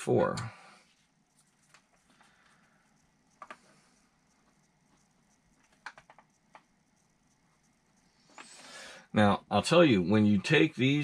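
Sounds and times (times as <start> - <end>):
small objects clicking and tapping: 1.3 - 8.6.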